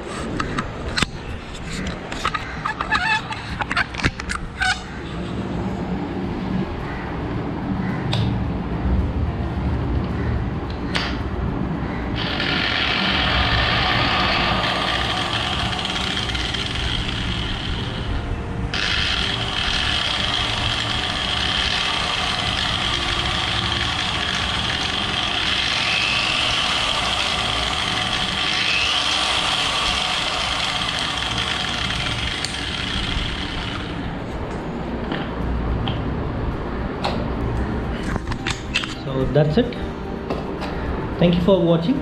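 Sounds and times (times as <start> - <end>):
angle grinder motor whine: 12.2 - 34.5.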